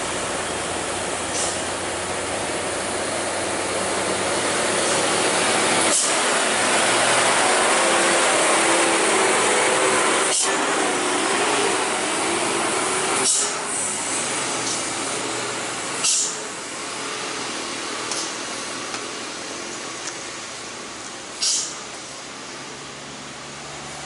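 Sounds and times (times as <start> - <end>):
truck diesel engine passing: 0.0 - 24.0
air brake hisses: 1.3 - 1.7, 5.9 - 6.3, 10.2 - 10.7, 13.2 - 14.0, 16.0 - 16.5, 21.4 - 21.8.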